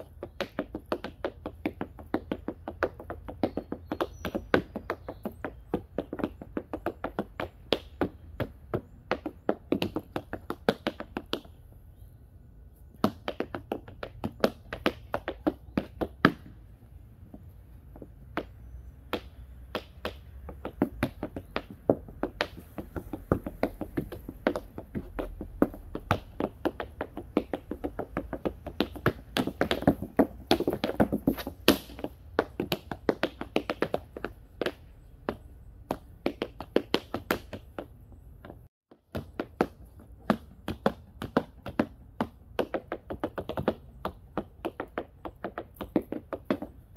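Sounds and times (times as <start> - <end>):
tap shoes on wooden board: 0.0 - 11.6, 12.9 - 46.9.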